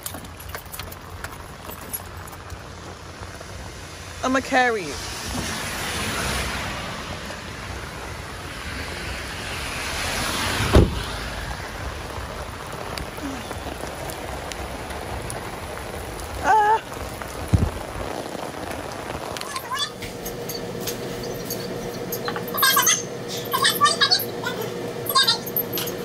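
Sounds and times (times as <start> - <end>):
rain on wet pavement: 0.0 - 26.0
heavy thump: 10.7 - 11.0.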